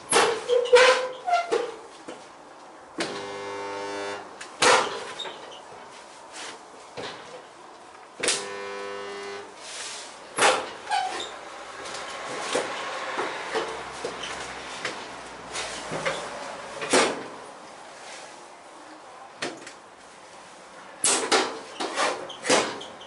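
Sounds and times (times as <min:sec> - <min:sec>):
electric welding buzz: 0:03.0 - 0:04.3, 0:08.2 - 0:09.5.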